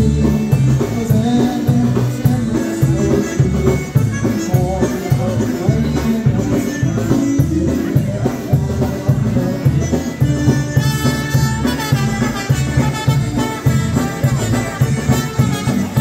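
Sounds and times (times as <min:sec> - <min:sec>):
drum kit: 0:00.0 - 0:16.0
trumpet: 0:10.4 - 0:16.0.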